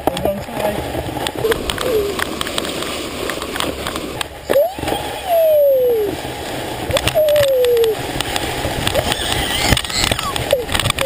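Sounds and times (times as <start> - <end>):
toddler calling: 9.0 - 10.4.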